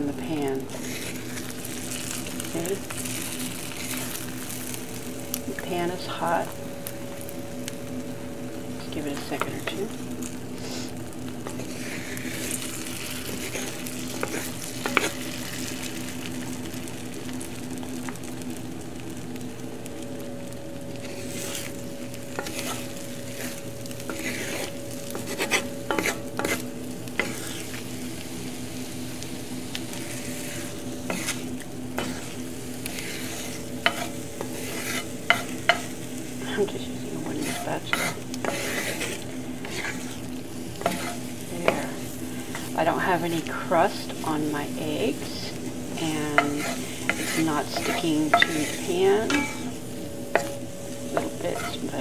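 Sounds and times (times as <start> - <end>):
eggs sizzling in a skillet: 0.0 - 52.0
wooden spatula scraping: 0.6 - 4.8, 9.0 - 16.0, 21.0 - 27.9, 29.7 - 44.2, 45.0 - 52.0.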